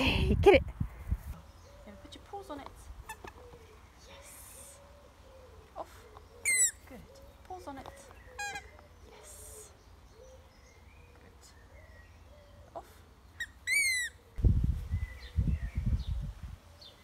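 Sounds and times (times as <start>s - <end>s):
rubber squeaky ball squeaking: 6.4s - 6.8s, 13.4s - 14.1s.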